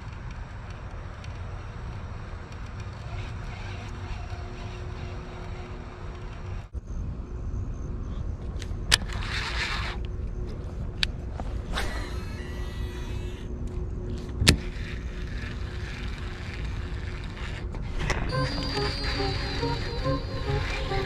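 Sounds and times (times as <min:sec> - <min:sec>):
fishing reel cranking: 0:03.0 - 0:06.7, 0:08.9 - 0:10.0, 0:11.9 - 0:13.5, 0:14.1 - 0:21.0.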